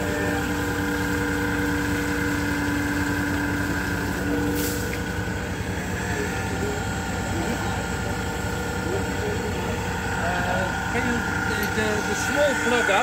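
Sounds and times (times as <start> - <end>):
engine running with pulsing drone: 0.0 - 13.0
brief hiss: 4.5 - 5.0.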